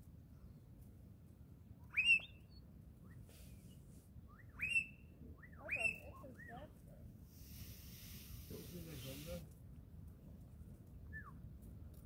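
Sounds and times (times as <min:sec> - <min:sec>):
spurfowl whistled calls: 0:01.9 - 0:02.4, 0:04.3 - 0:06.6.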